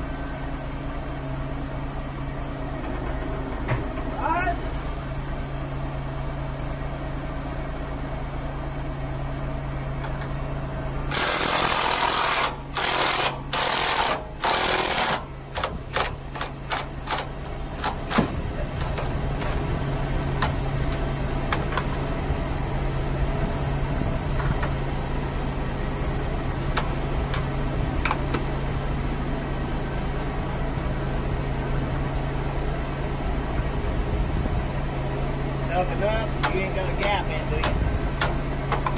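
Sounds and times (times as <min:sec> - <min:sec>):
low engine drone: 0:00.0 - 0:38.9
impact wrench hammering: 0:36.4 - 0:38.9.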